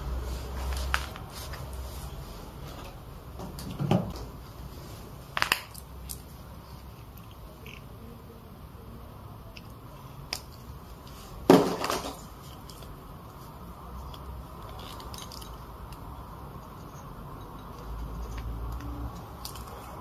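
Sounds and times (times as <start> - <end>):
paint tubes clicking and tapping: 14.0 - 20.0.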